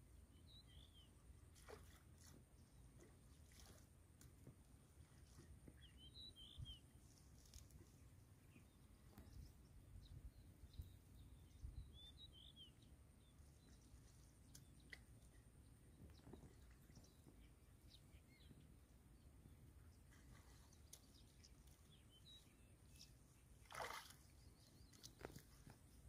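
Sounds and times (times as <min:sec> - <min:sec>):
faint bird chirps: 0:05.7 - 0:07.5, 0:08.4 - 0:15.4.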